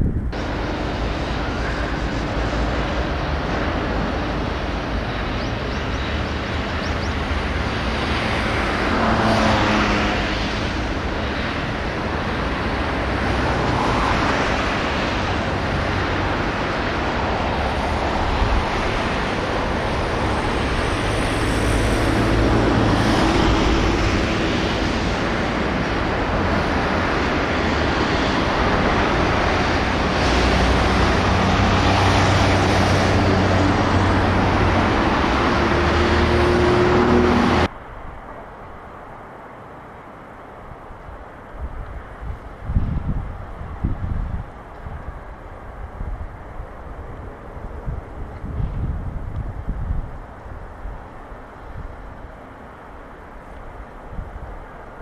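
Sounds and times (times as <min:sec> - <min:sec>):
vehicles passing: 0:00.0 - 0:55.0.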